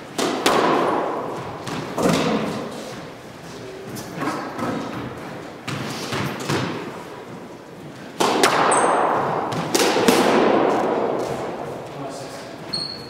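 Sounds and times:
squash ball hits: 0:00.0 - 0:03.0, 0:04.1 - 0:07.1, 0:07.9 - 0:12.0.

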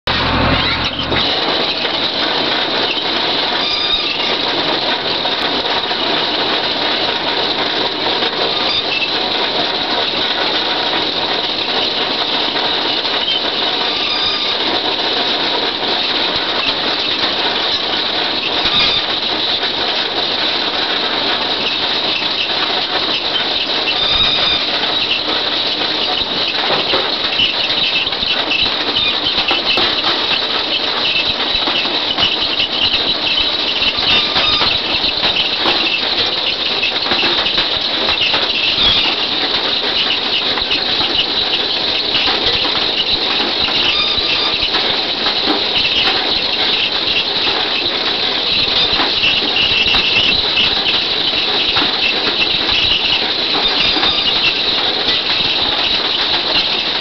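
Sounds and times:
harvester machinery clatter: 0:00.0 - 0:57.0
high metallic squeal: 0:00.1 - 0:02.1, 0:02.8 - 0:04.8, 0:08.4 - 0:09.3, 0:12.9 - 0:14.9, 0:18.4 - 0:19.3, 0:23.1 - 0:56.8.

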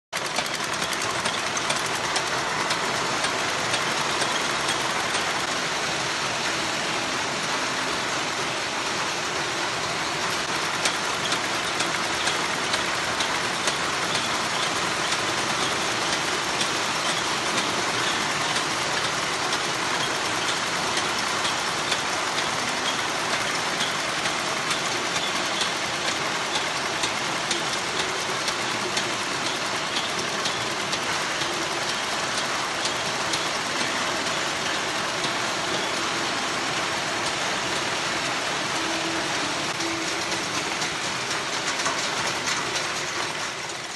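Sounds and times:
sewing machine whirring and clattering: 0:00.1 - 0:43.9.

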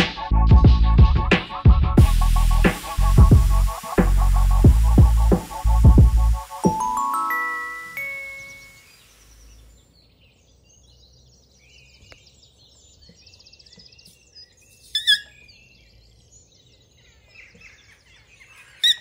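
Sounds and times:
small birds chirping: 0:02.8 - 0:19.0
sharp bird calls: 0:08.0 - 0:19.0.

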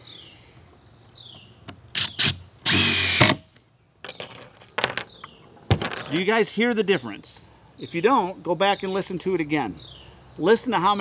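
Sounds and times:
impact driver whirring: 0:02.0 - 0:03.4.

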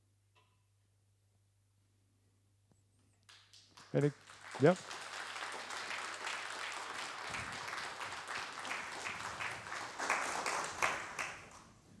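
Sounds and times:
audience applauding: 0:03.3 - 0:11.7.

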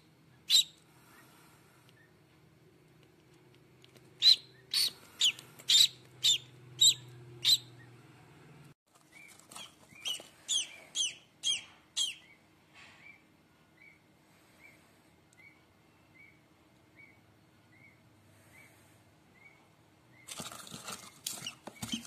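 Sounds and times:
duckling peeping: 0:00.3 - 0:01.3, 0:04.2 - 0:08.0, 0:09.1 - 0:12.4, 0:13.8 - 0:14.0, 0:15.4 - 0:18.8.

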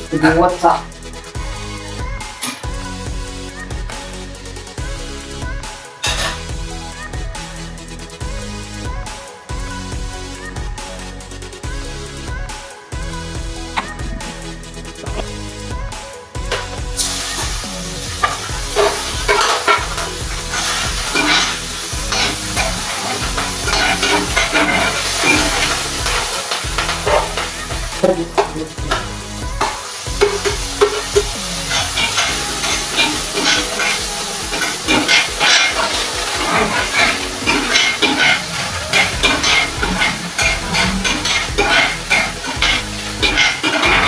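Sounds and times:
vegetables sizzling: 0:16.5 - 0:44.0
metal spoon scraping a pan: 0:18.1 - 0:44.0.

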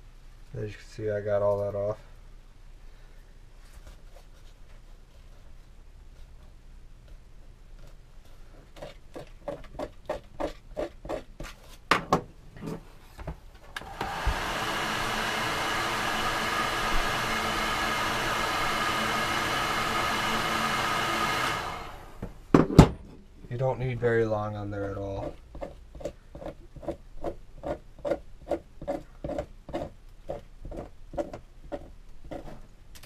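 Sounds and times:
heat gun fan whirring: 0:13.6 - 0:22.5.

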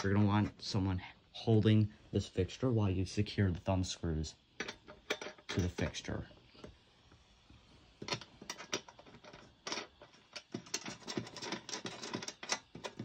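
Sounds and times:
small clicks and scrapes: 0:08.0 - 0:13.0.

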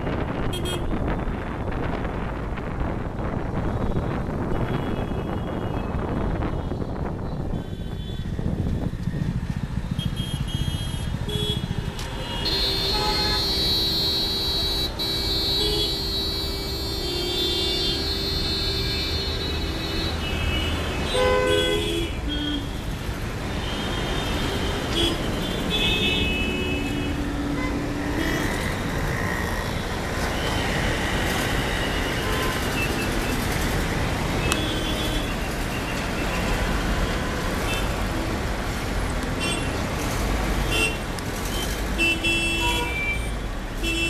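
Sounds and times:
vehicle horns honking: 0:10.0 - 0:22.9, 0:23.6 - 0:28.7, 0:34.3 - 0:38.2, 0:40.6 - 0:44.0.

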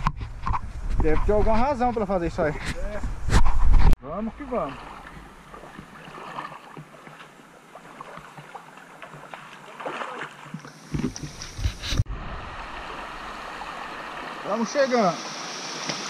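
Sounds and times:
stream running over rocks: 0:04.1 - 0:16.0
feet splashing in water: 0:04.2 - 0:11.9
river water rushing: 0:04.4 - 0:11.4, 0:12.1 - 0:16.0.

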